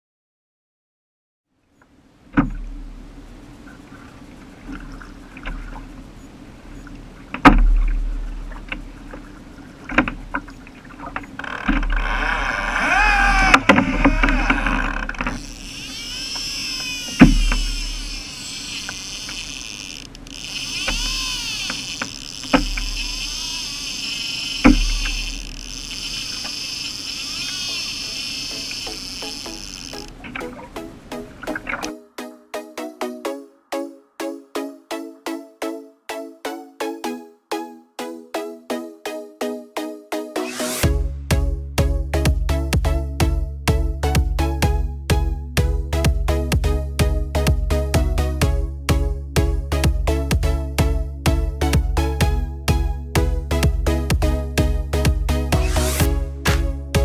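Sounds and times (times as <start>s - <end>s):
water slapping against kayak hull: 7.2s - 15.4s, 17.0s - 18.0s, 20.8s - 23.3s, 24.6s - 25.4s, 55.0s - 57.0s.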